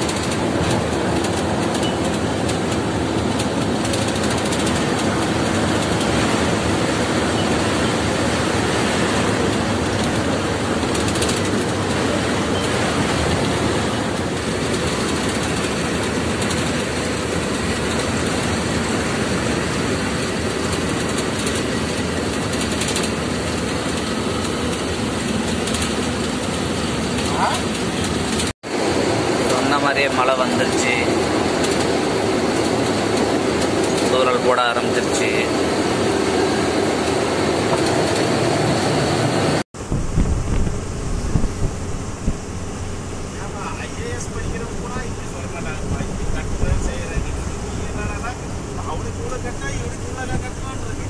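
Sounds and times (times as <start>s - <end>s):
lorry engine drone: 0.0s - 51.0s
road and wind noise: 0.0s - 51.0s
wind buffeting microphone: 35.6s - 43.4s, 44.2s - 51.0s.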